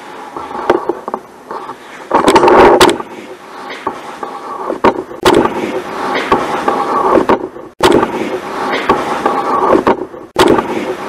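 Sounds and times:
muffled sound: 0.0 - 11.0
knocks: 4.7 - 11.0.

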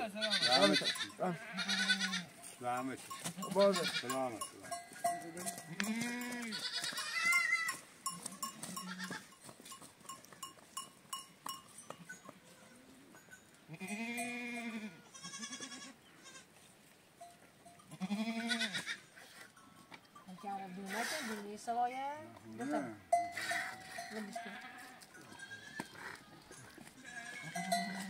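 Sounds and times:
animals bleating: 0.0 - 2.4, 3.1 - 9.4, 13.7 - 16.6, 17.8 - 19.2, 23.4 - 28.0.

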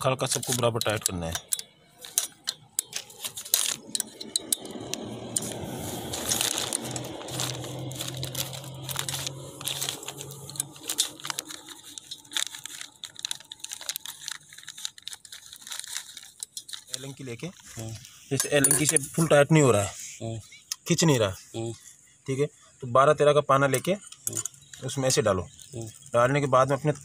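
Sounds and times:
plastic wrapping crinkling: 0.0 - 18.1, 24.3 - 27.0.

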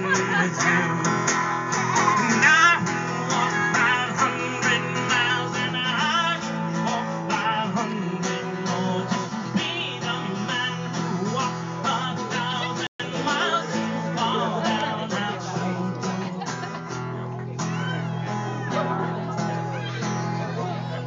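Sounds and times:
person singing: 0.0 - 16.3
acoustic guitar strumming: 0.0 - 21.0.

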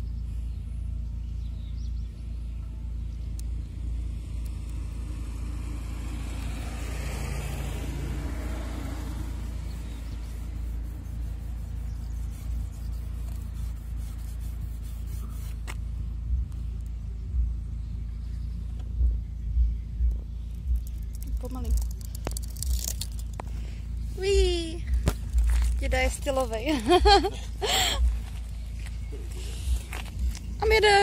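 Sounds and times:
traffic rumble: 0.0 - 31.0
car passing by: 5.1 - 11.8.

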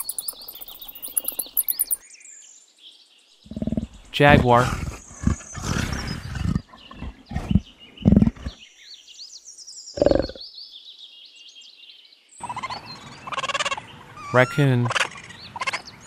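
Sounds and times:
jaguar calling: 0.0 - 2.0
faint bird chirps: 0.0 - 4.1.

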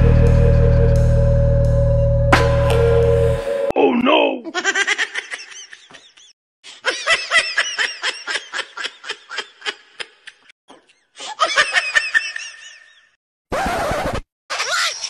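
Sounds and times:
high-pitched rapid laugh: 4.5 - 10.3, 14.5 - 15.0.

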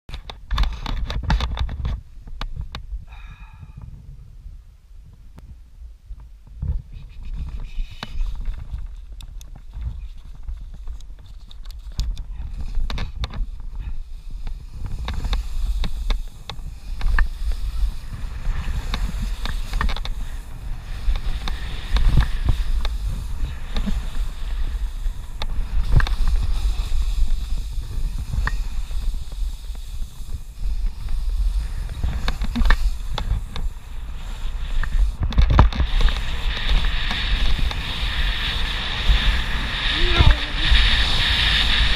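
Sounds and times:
wind buffeting microphone: 0.6 - 41.9
snowboard scraping over snow: 11.8 - 41.9.

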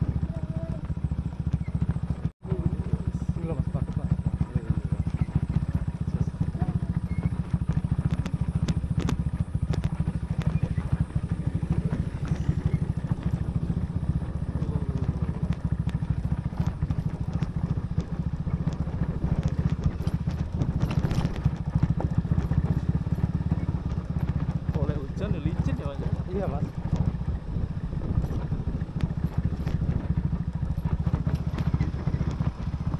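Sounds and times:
motorcycle engine rumble: 0.0 - 32.9
clicks and rattles: 3.6 - 32.9
wind on microphone: 27.1 - 30.2.

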